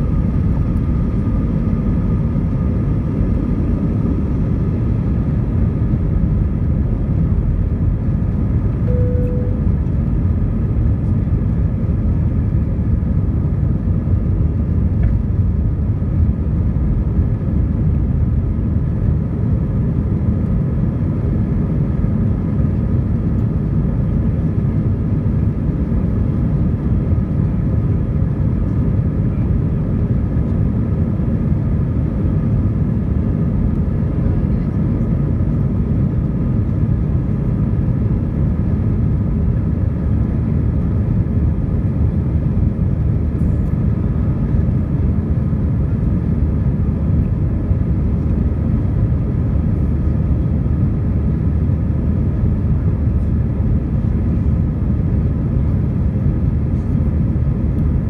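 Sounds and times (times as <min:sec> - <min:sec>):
jet engine cabin rumble: 0:00.0 - 0:58.0
faint whining tones: 0:08.9 - 0:10.0.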